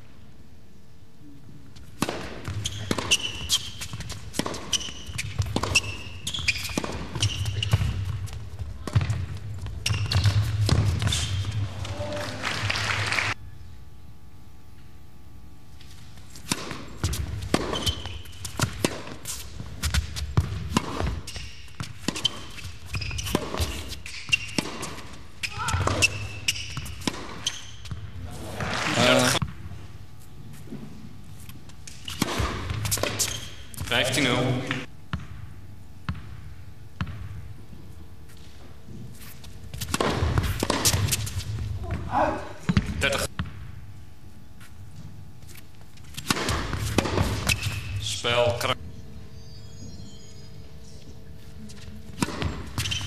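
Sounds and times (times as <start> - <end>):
tennis ball bounces: 2.0 - 11.8, 16.4 - 28.2, 39.7 - 42.1, 46.0 - 48.1, 52.1 - 53.0
tennis racket hits: 16.4 - 27.5, 46.0 - 48.2.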